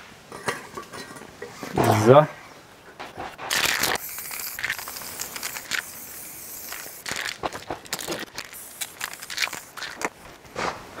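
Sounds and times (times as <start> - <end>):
steady hiss: 1.4 - 11.0
footsteps crunching: 7.0 - 11.0.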